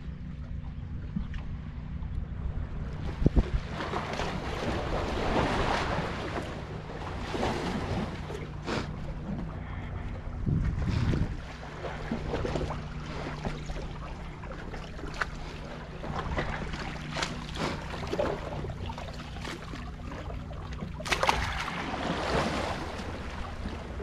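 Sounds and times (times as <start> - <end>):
low steady hum: 0.0 - 24.0
small waves lapping against rocks: 10.9 - 24.0.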